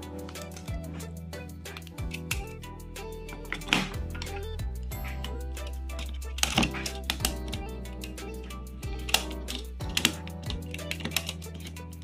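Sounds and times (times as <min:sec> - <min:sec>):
background music sustained tones: 0:00.0 - 0:12.0
plastic parts clicking: 0:05.9 - 0:12.0.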